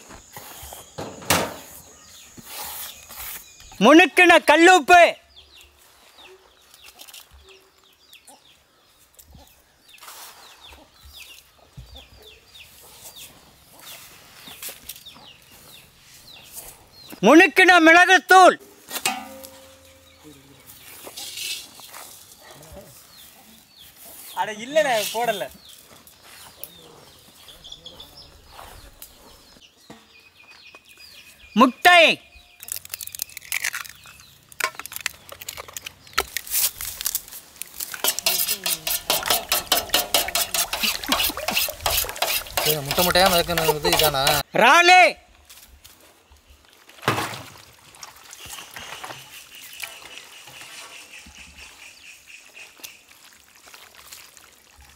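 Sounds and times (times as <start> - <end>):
chickens chirping: 5.4 - 17.2, 19.4 - 31.7
clinking against metal vessel: 19.0 - 20.2, 38.0 - 44.4
wet stirring: 33.1 - 44.4.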